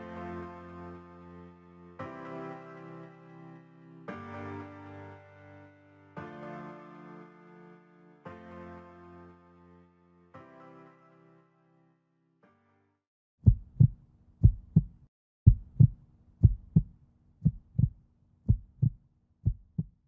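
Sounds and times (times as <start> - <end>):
background music: 0.0 - 13.0
heartbeat thumps: 13.4 - 20.0.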